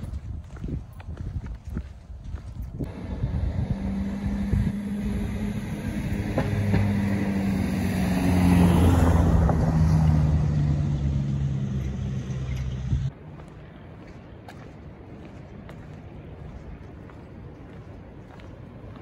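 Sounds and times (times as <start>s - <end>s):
car driving past on wet road: 2.9s - 13.1s.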